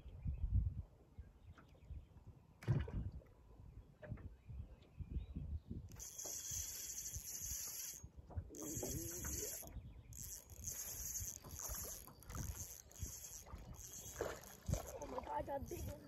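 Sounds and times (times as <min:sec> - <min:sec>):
water and wind noise: 0:00.0 - 0:16.0
fishing reel whirring: 0:05.9 - 0:16.0.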